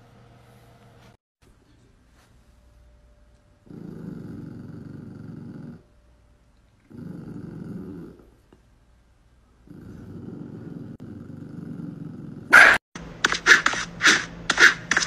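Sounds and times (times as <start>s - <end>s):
small dog growling: 3.6s - 5.9s, 6.8s - 8.4s, 9.6s - 12.8s.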